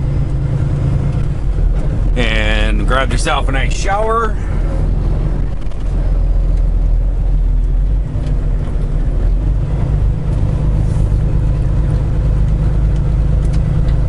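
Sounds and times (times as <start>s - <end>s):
diesel truck engine drone: 0.0s - 14.0s.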